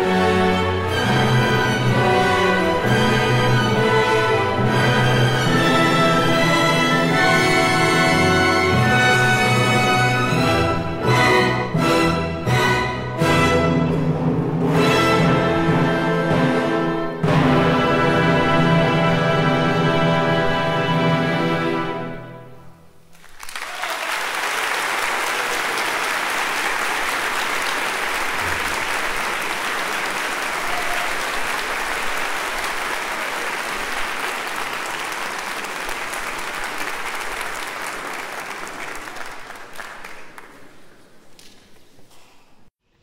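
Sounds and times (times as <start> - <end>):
orchestral music: 0.0 - 23.0
audience applauding: 23.1 - 41.7.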